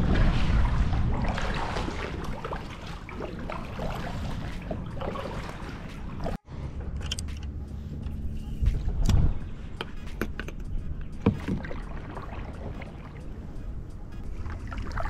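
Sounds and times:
wind rumble on microphone: 0:00.0 - 0:05.0, 0:07.9 - 0:15.0
paddle knocks and splashes: 0:00.0 - 0:06.4, 0:11.2 - 0:13.0.

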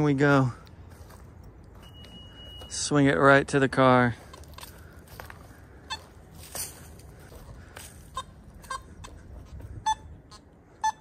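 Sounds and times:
crunching footsteps: 0:00.0 - 0:02.9, 0:03.6 - 0:10.5
metal detector beeps: 0:01.8 - 0:03.1, 0:09.8 - 0:11.0.

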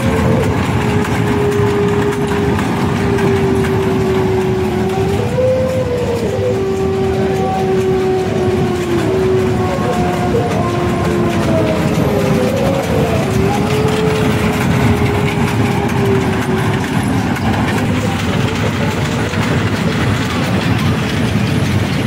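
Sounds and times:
fairground din: 0:00.0 - 0:22.0
kiddie train ride running: 0:00.0 - 0:22.0.

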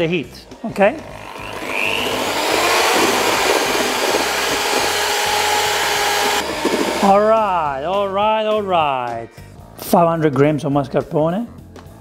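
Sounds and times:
electric hand mixer whisking: 0:00.9 - 0:07.8.

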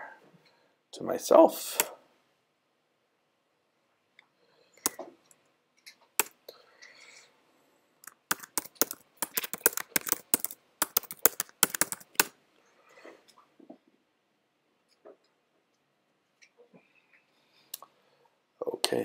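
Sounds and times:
laptop keyboard typing: 0:06.2 - 0:06.4, 0:08.0 - 0:12.4.

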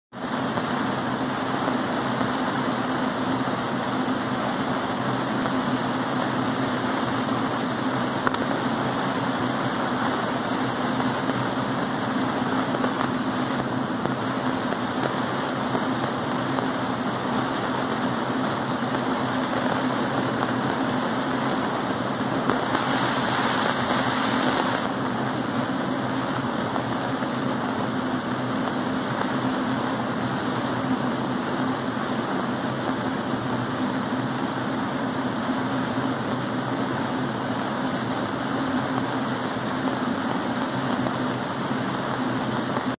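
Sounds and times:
laser cutter machine hum: 0:00.2 - 0:42.9
laser cutting hiss: 0:22.4 - 0:24.9.

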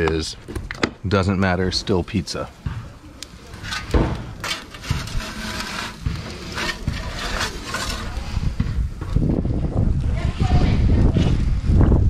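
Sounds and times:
metal peel scraping over stone: 0:03.4 - 0:08.6.

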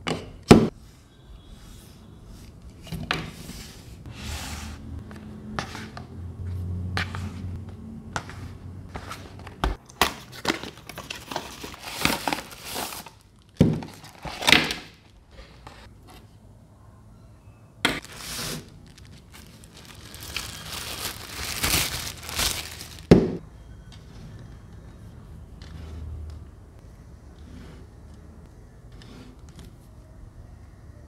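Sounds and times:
paper wrapping crinkling: 0:10.0 - 0:15.2, 0:18.0 - 0:23.2
cardboard box rustling: 0:10.3 - 0:13.1, 0:18.0 - 0:23.0.

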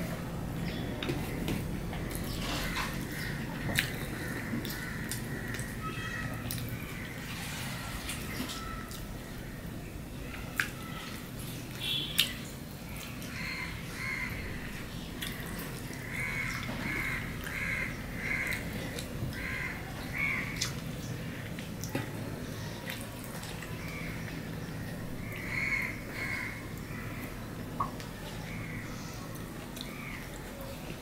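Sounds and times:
crow cawing: 0:04.2 - 0:06.4, 0:13.4 - 0:14.4, 0:16.0 - 0:18.6, 0:19.4 - 0:20.6, 0:25.2 - 0:27.3.

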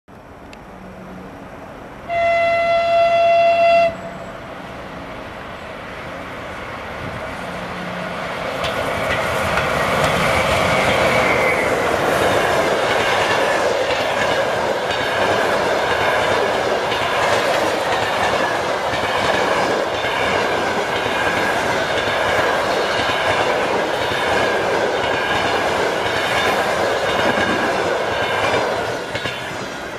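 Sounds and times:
train passing rumble: 0:00.1 - 0:29.9
train horn blast: 0:02.1 - 0:04.5
wheels clacking over rail joints: 0:08.3 - 0:29.9.

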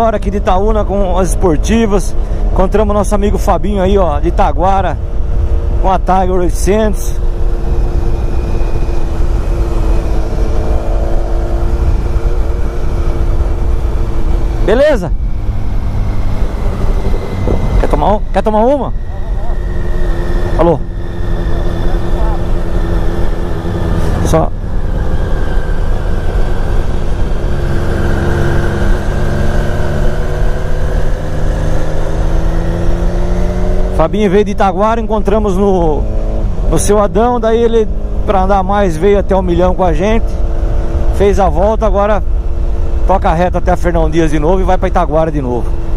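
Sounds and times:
wind rumble on microphone: 0:00.0 - 0:33.9
motorcycle engine hum: 0:00.0 - 0:45.9.

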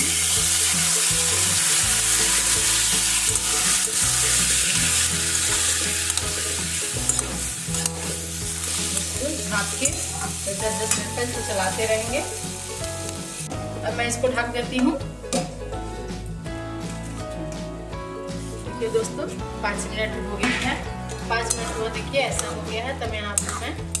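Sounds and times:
tomatoes sizzling in hot fat: 0:00.0 - 0:14.6.

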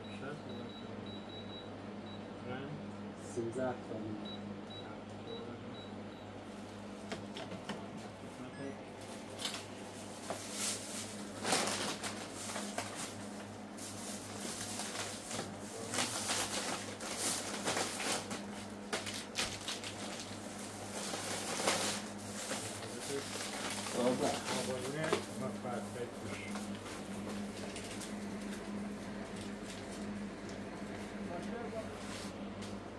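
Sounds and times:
steady low hum: 0:00.0 - 0:32.9
plastic bag rustling: 0:09.1 - 0:30.1.

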